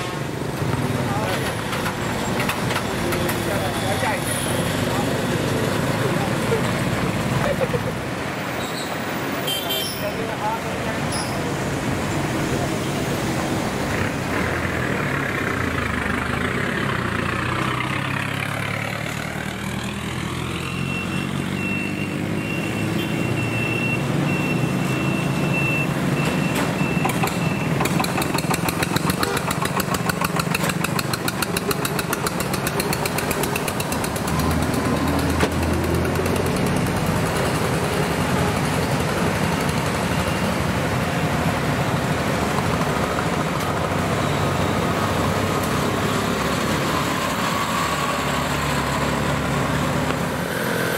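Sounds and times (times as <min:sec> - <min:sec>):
traffic engines passing: 0:00.0 - 0:50.9
tractor chugging: 0:27.1 - 0:40.0.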